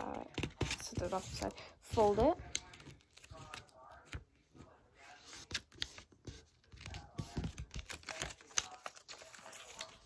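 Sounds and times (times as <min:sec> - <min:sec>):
paper crinkling and creasing: 0:05.2 - 0:10.0.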